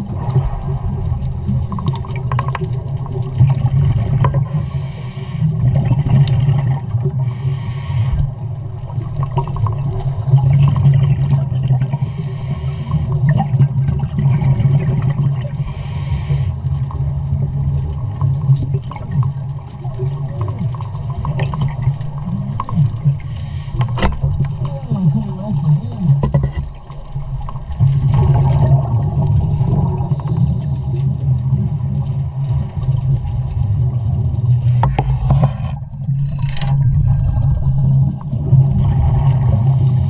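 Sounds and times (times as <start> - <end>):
underwater rumble and bubbles: 0.0 - 40.0
diver breathing through regulator: 4.4 - 5.6, 7.2 - 8.3, 11.8 - 13.2, 15.5 - 16.6, 23.2 - 24.1, 28.9 - 30.9, 34.6 - 35.8, 39.3 - 40.0.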